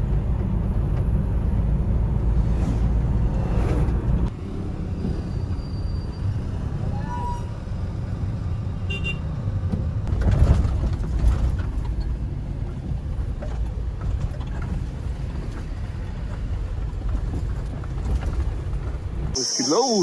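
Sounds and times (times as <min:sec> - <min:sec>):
high-pitched insect drone: 0:19.4 - 0:20.0.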